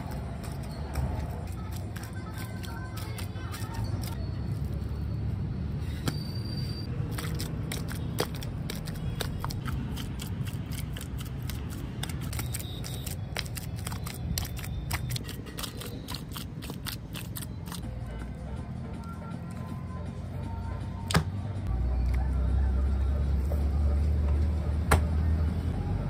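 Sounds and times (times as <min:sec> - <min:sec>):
bare feet squelching in wet clay: 0:07.1 - 0:17.8.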